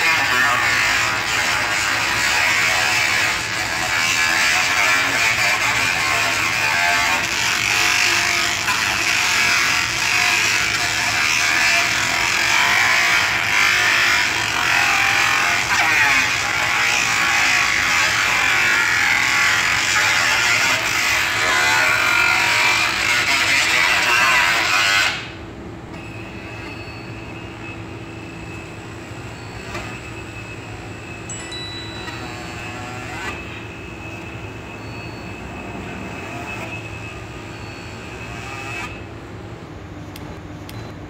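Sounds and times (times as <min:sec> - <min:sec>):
laser head buzzing whine: 0:00.0 - 0:25.4, 0:26.0 - 0:39.2
low machine hum: 0:25.3 - 0:41.0.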